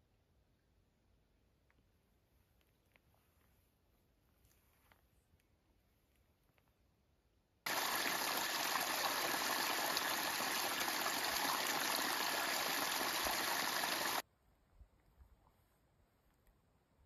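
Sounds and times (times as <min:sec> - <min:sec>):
creek rushing over rocks: 0:07.7 - 0:14.2.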